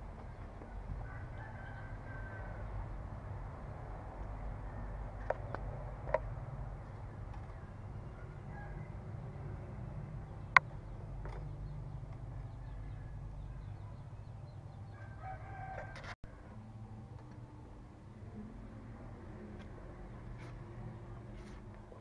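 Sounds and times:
distant rooster crowing: 0.6s - 3.2s, 8.0s - 9.9s, 14.9s - 16.7s.

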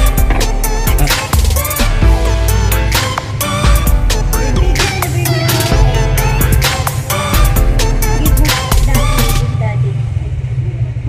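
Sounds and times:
music with heavy bass and drums: 0.0s - 9.5s.

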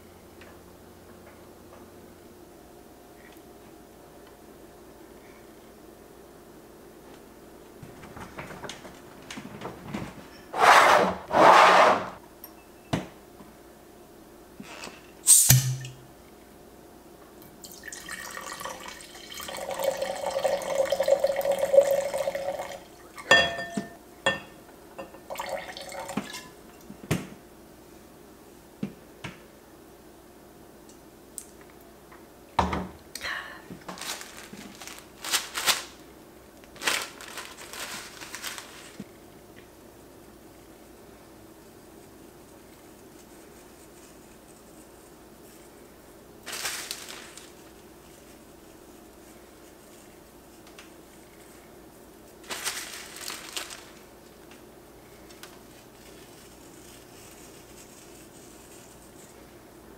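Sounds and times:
short loud noises: 10.6s - 12.2s
wine pouring into glass: 17.6s - 23.6s, 25.3s - 26.5s
glass clinks and knocks: 23.3s - 25.1s
plastic bag rustling: 33.8s - 39.2s, 46.4s - 50.3s, 52.4s - 54.2s, 55.3s - 59.4s.

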